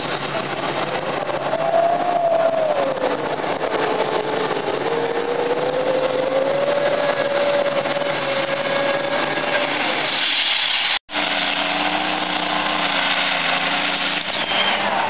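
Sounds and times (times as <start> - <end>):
tractor engine running flat out: 0.0 - 10.1.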